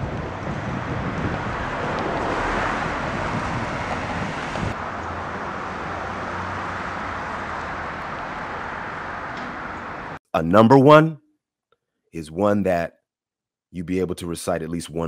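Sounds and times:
distant traffic rumble: 0.0 - 10.2
vehicles passing: 0.0 - 10.2
wind on microphone: 0.0 - 10.2.

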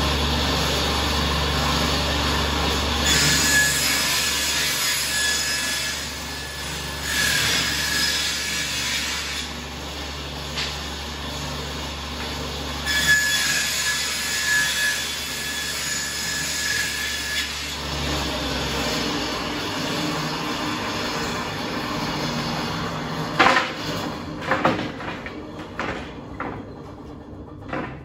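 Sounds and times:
table saw humming: 0.0 - 28.0
saw blade screeching through wood: 3.0 - 9.6, 12.8 - 23.0.

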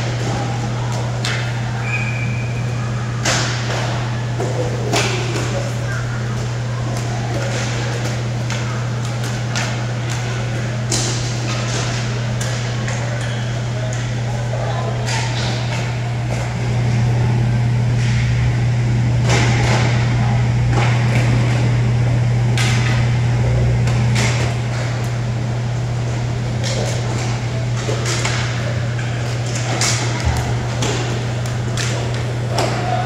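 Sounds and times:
hockey sticks and puck clacking: 0.0 - 2.5, 3.2 - 16.6, 19.2 - 21.7, 22.5 - 25.2, 25.9 - 33.0
steady low hum: 0.0 - 33.0.

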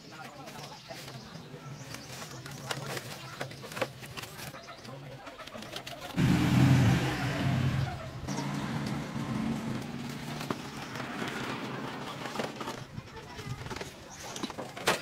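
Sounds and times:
vehicle engine running: 6.2 - 11.0.

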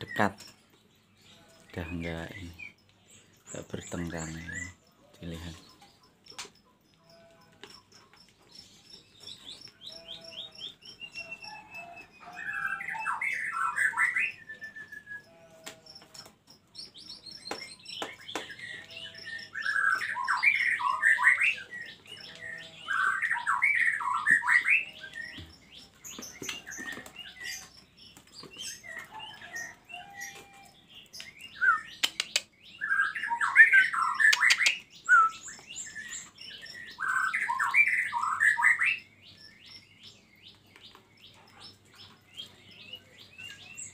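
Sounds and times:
soft bird chirps: 0.0 - 43.9
songbird warbling: 28.7 - 39.1
sharp clicks: 31.1 - 32.5, 34.3 - 34.8.

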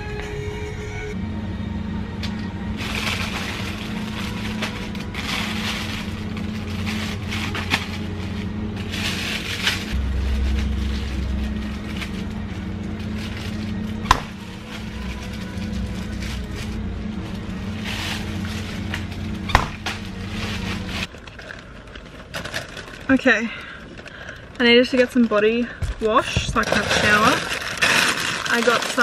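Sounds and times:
steady low hum: 0.2 - 21.1
plastic bags crinkling: 2.8 - 16.9, 17.6 - 29.0.

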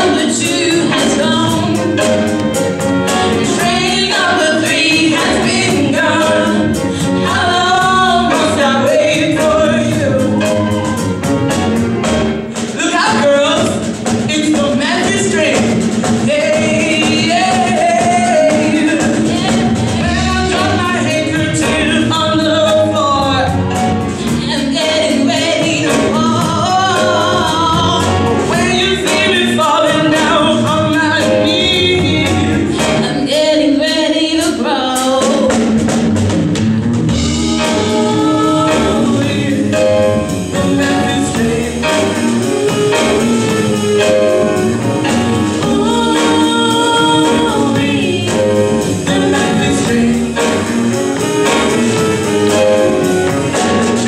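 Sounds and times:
women singing: 0.0 - 11.1, 16.3 - 23.1, 37.2 - 43.9, 45.5 - 54.0
steady beat: 0.0 - 33.2, 35.4 - 54.0
electric guitars: 34.7 - 54.0.

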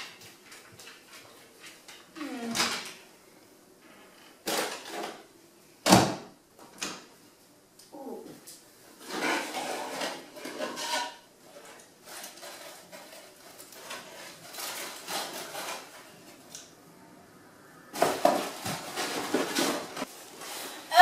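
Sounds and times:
cardboard packaging rustling: 12.0 - 16.5, 18.0 - 20.9.

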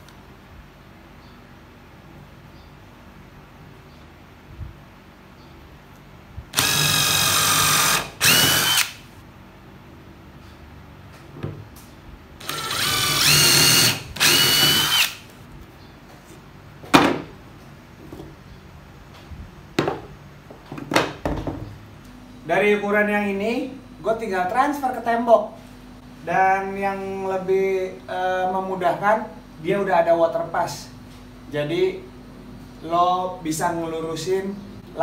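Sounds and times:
impact driver motor whine: 6.5 - 9.1, 12.4 - 15.3.

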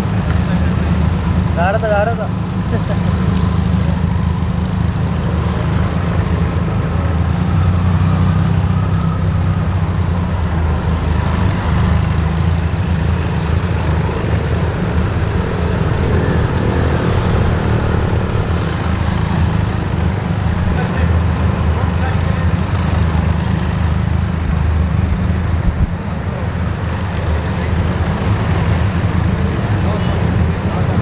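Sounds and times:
motorcycles passing at low speed: 0.0 - 31.0.

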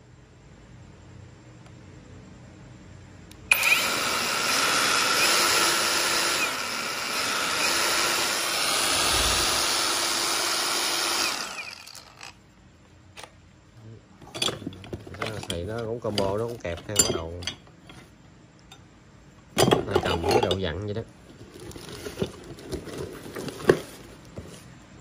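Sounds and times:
angle grinder running: 3.5 - 12.4.

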